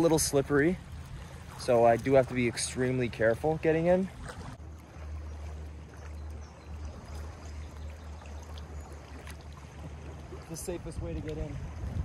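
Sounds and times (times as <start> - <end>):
small waves lapping on rocks: 0.0 - 12.0
wind rumble on microphone: 4.1 - 12.0.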